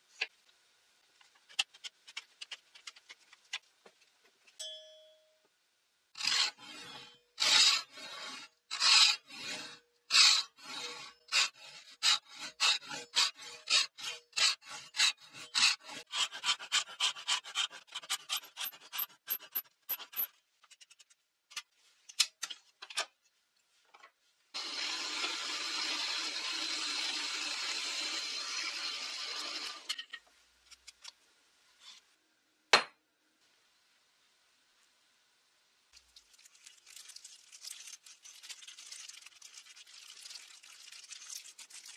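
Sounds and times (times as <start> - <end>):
hand saw rasping through wood: 6.2 - 19.1.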